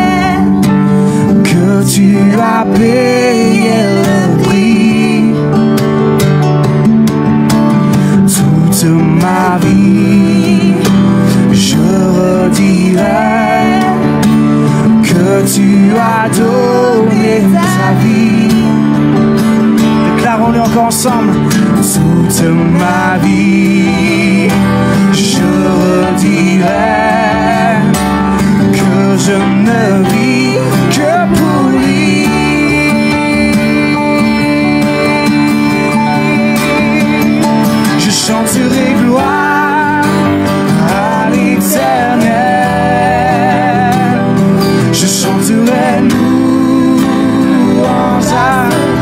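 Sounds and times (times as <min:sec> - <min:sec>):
woman singing: 0:00.0 - 0:00.7, 0:02.0 - 0:05.4, 0:11.8 - 0:14.2, 0:15.2 - 0:18.6
guitar accompaniment: 0:00.0 - 0:49.0
keyboard chords: 0:00.0 - 0:49.0.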